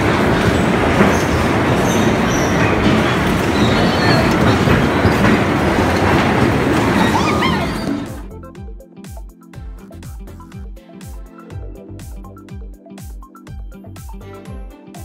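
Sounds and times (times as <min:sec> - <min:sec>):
bumper cars rumbling on metal floor: 0:00.0 - 0:08.3
faint high squeaks: 0:00.5 - 0:06.1, 0:06.7 - 0:08.3.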